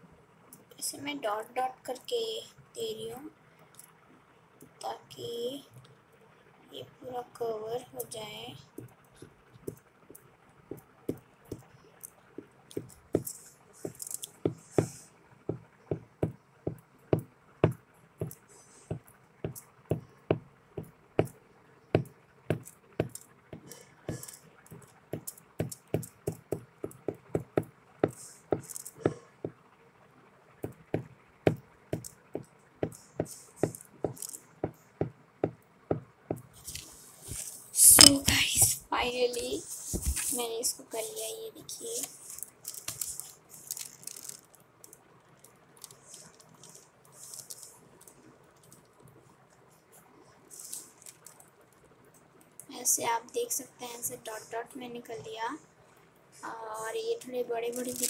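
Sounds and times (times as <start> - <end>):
glue bottle tapping foil: 22.0 - 29.2, 42.3 - 44.6.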